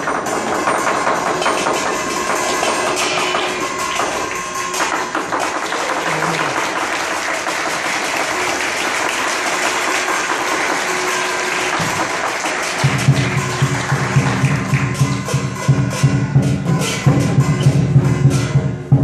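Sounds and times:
cymbal and gong clashes: 0.0 - 5.2, 10.3 - 19.0
big drum beating loud and fast: 0.0 - 19.0.

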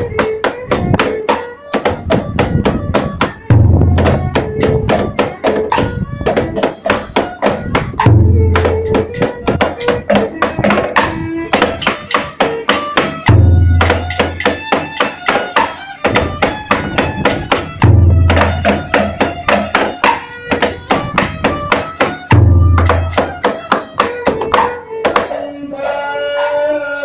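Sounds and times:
plucked string notes: 0.0 - 26.8
deep barrel drum booms: 2.1 - 6.5, 20.9 - 23.3.

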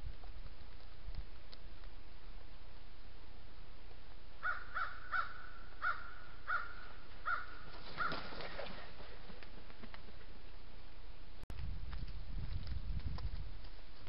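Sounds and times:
bird harsh calls: 4.4 - 8.4.

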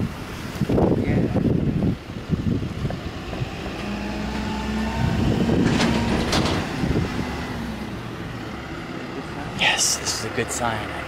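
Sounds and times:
truck diesel engine idling: 7.8 - 11.0.

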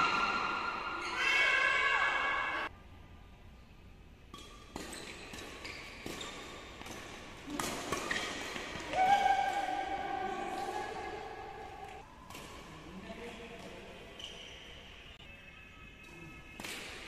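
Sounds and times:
rackets hitting shuttlecock: 4.3 - 10.8, 11.6 - 14.3, 16.6 - 17.0.

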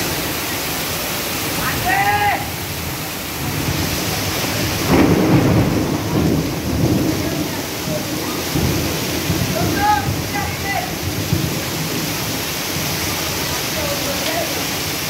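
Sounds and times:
heavy rain pouring: 0.0 - 15.0
thunder rumbling: 2.6 - 14.1.

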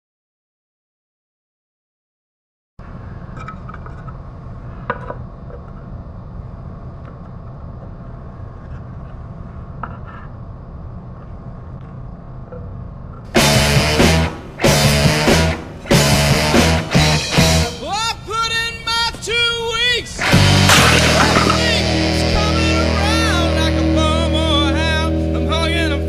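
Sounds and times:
loud rock music: 13.4 - 17.9, 20.2 - 24.3
wooden boards knocking and scraping: 20.7 - 21.8.

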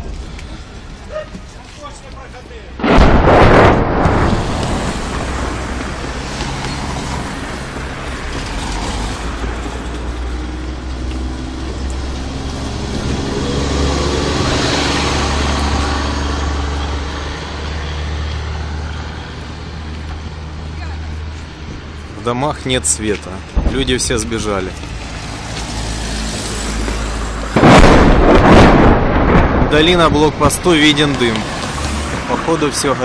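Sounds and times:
road traffic hum: 0.0 - 33.0
vehicle passing: 2.5 - 33.0
loud bang: 2.8 - 5.8, 23.6 - 24.4, 27.5 - 30.6.

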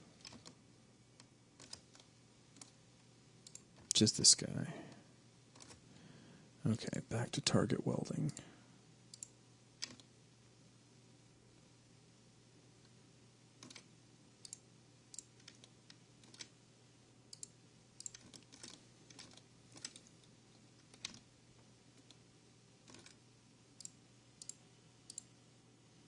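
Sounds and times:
faint low hum: 0.0 - 26.0
mouse and keyboard clicking: 1.2 - 2.8, 9.1 - 10.1, 13.6 - 14.6, 15.2 - 16.5, 17.3 - 21.2.

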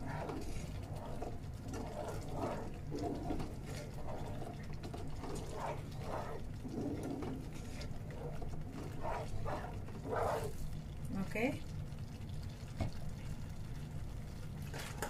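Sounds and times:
spatula stirring in a pan: 0.0 - 11.4.

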